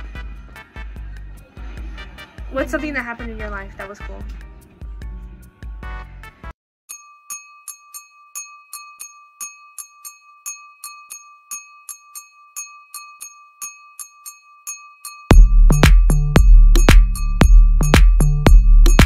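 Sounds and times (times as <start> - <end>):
bell-like ticks: 6.9 - 19.0
steady high tone: 6.9 - 19.0
electronic dance music: 15.3 - 19.0.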